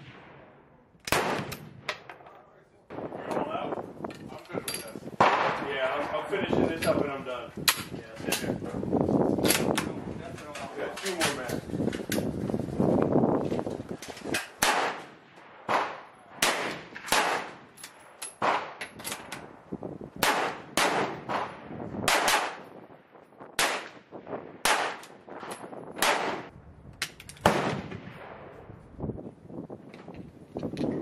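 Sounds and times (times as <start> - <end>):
rapid gunshots with echo: 14.6 - 17.8, 20.2 - 22.7, 23.6 - 25.1, 26.0 - 26.5.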